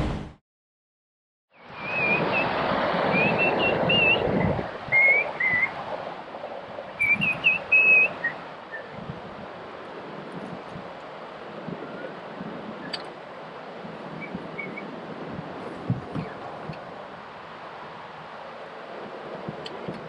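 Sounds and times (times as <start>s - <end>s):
wind: 1.5s - 20.0s
birds singing whistled phrases: 1.6s - 5.8s, 7.0s - 9.0s, 14.2s - 14.9s
river water rushing: 1.6s - 20.0s.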